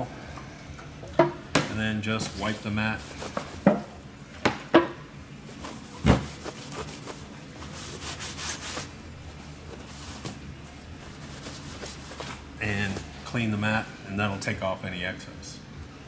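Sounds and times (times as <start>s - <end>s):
paper towel rubbing on mat: 2.2s - 3.8s, 5.5s - 13.2s.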